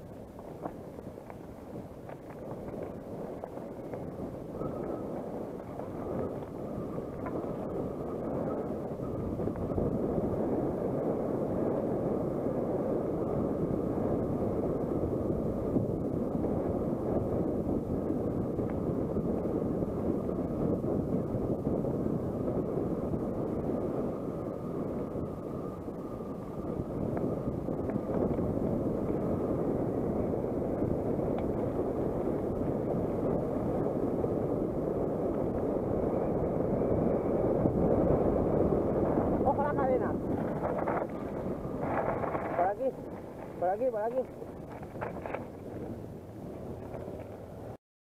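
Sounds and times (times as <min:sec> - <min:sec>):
wind rushing over microphone: 0:00.0 - 0:47.8
tyres rolling over gravel: 0:00.2 - 0:04.4, 0:44.3 - 0:47.7.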